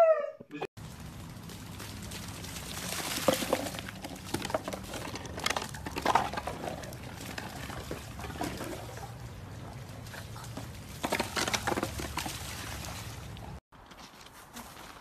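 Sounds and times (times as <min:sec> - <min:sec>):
shallow water splashing: 0:01.0 - 0:04.4.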